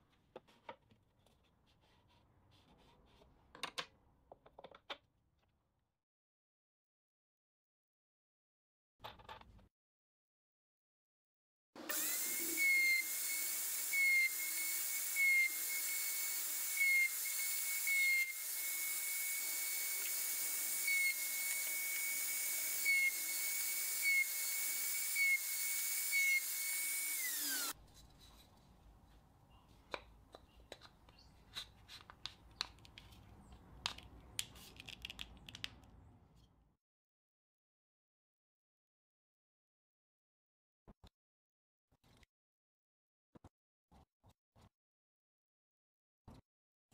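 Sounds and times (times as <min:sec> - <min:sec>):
router whining: 0:11.8 - 0:27.8.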